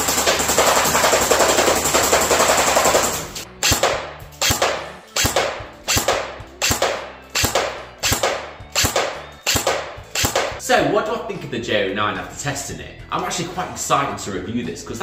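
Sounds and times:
airsoft rifle firing: 0.0 - 10.6.

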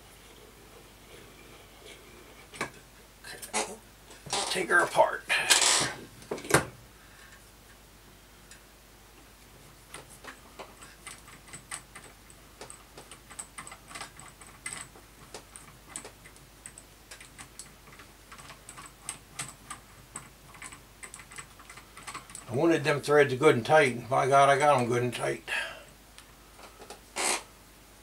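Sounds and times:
metal parts clicking and tapping: 9.9 - 22.5.

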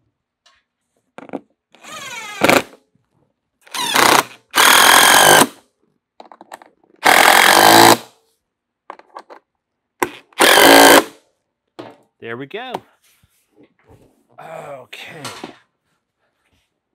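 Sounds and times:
impact driver hammering: 10.4 - 11.2.

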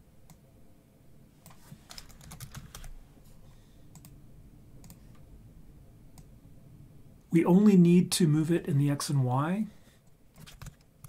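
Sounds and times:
keyboard typing: 1.4 - 3.0, 10.4 - 11.0.

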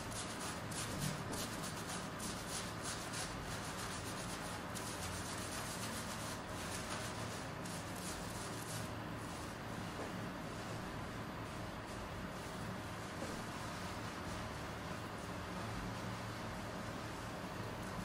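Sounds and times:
fingers scrubbing lathered hair: 0.0 - 9.8.

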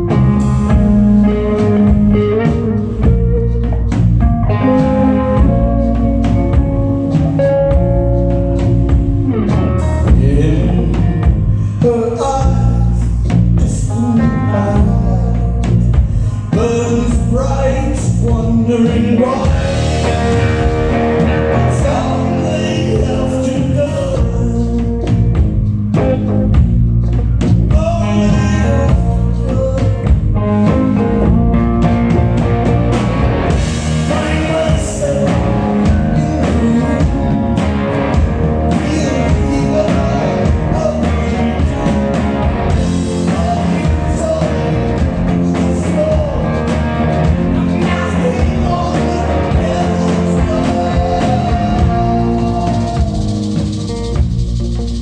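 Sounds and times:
live blues-rock band: 0.0 - 55.0
man singing lead: 9.8 - 25.3, 27.5 - 31.3, 33.6 - 53.7.

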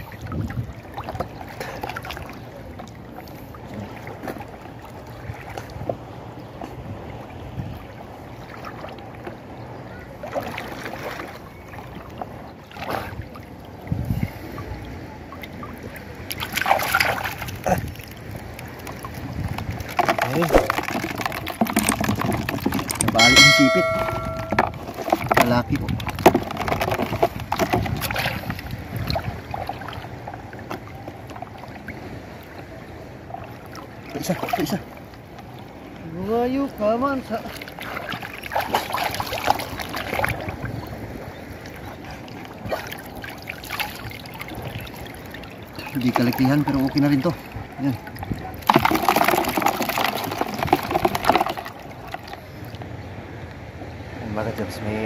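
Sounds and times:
small water splashes: 0.0 - 53.1
seawater lapping and sloshing: 0.0 - 54.3.

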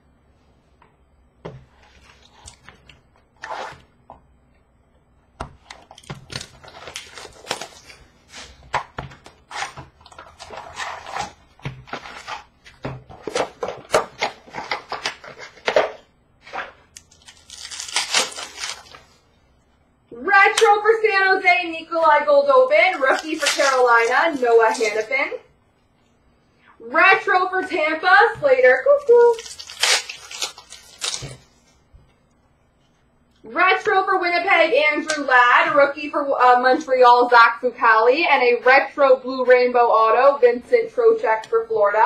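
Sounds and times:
foil wrapper crinkling: 5.8 - 8.6, 16.6 - 19.2, 22.9 - 25.2, 29.0 - 31.6
foil pack tearing: 6.2 - 8.6, 17.1 - 19.1, 22.9 - 25.2, 29.2 - 31.5.

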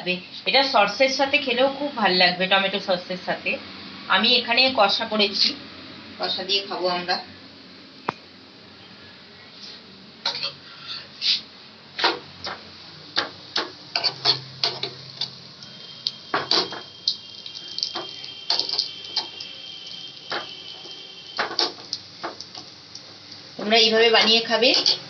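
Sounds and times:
spatula clicking on griddle: 13.2 - 15.4, 24.2 - 25.0
faint high whine: 15.2 - 22.2.

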